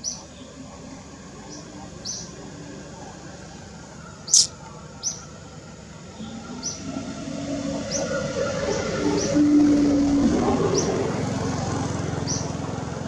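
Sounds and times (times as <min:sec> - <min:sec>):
low murmur with held tone: 0:00.0 - 0:06.4
short high chirps: 0:04.3 - 0:04.5.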